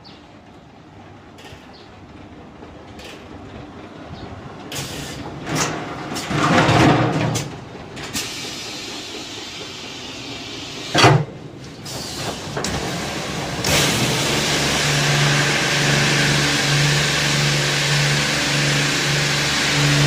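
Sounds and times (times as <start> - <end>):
rushing hissing water: 11.8 - 20.0
machine hum: 12.5 - 20.0.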